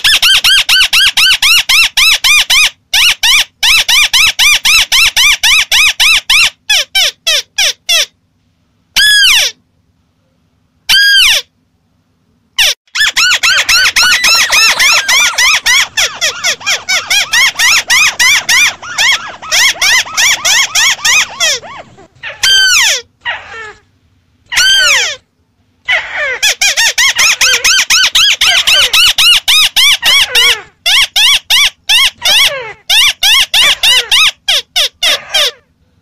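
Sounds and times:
crake calls chattering: 0:12.6 - 0:23.1.

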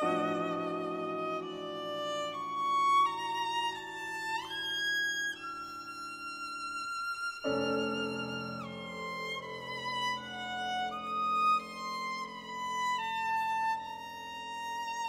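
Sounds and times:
piano chord: 0:00.0 - 0:01.7
viola playing: 0:00.0 - 0:15.0.

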